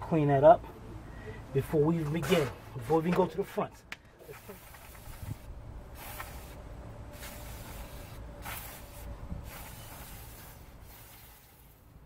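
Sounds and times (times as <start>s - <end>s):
aerosol spray hissing: 4.2s - 11.8s.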